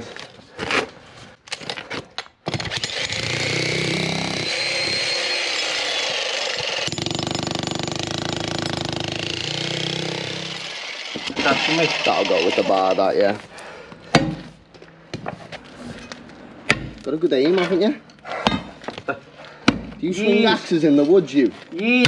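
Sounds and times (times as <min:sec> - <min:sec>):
jackhammer hammering concrete: 0:02.6 - 0:13.1.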